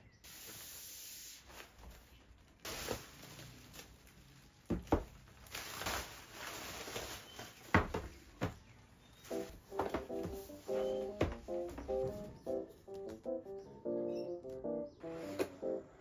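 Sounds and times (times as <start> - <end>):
plastic and bubble wrap crinkling: 0.3 - 12.3
cardboard boxes knocking on desk: 4.7 - 5.2, 7.7 - 8.6, 9.4 - 12.3.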